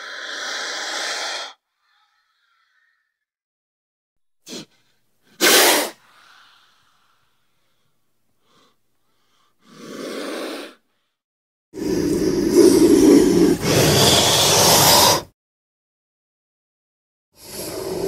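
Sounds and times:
cobra hissing: 0.0 - 3.1, 4.5 - 7.8, 8.4 - 11.1, 11.8 - 15.3, 17.4 - 18.0.

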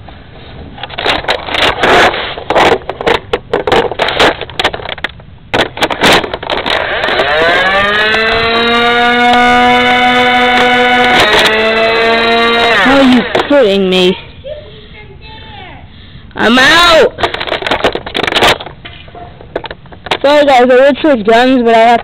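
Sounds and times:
flywheel motors whining: 6.4 - 14.0.

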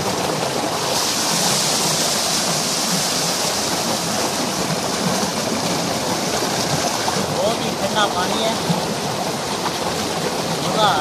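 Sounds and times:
water jet splashing into tank: 0.0 - 11.0.

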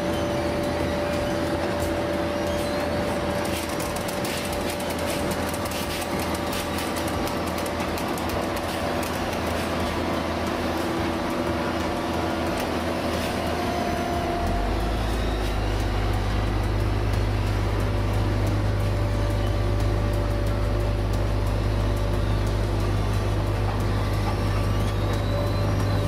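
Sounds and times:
diesel engine humming: 0.0 - 26.0
metallic rattling and clicking: 3.2 - 13.3.

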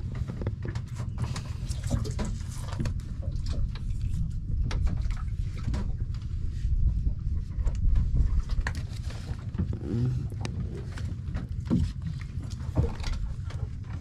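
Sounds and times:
steady low rumble: 0.0 - 14.0
fish slapping on wooden hold: 0.2 - 6.2.

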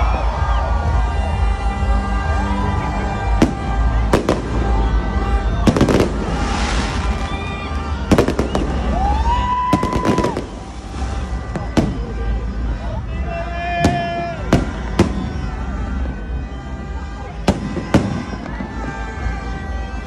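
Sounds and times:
rising firework whistle: 2.4 - 12.4, 13.8 - 20.0
firework bangs and crackles: 3.0 - 12.8, 13.8 - 20.0.

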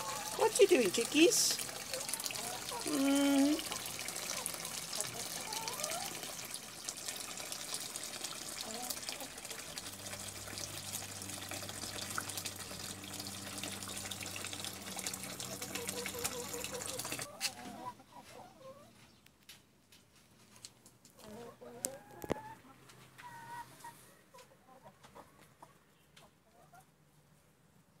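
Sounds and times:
hens clucking: 0.0 - 6.3, 8.4 - 9.9, 15.4 - 19.0, 21.2 - 26.9
water running into a basin: 0.0 - 17.3.

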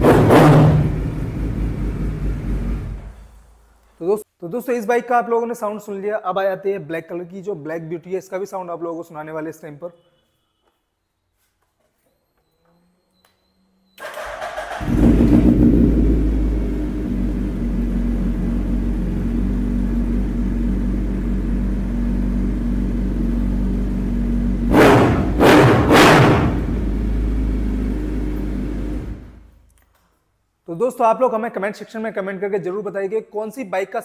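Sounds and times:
motorcycle engine idling and revving: 0.0 - 3.2, 14.1 - 29.5
motorcycle starter cranking: 14.0 - 16.0.

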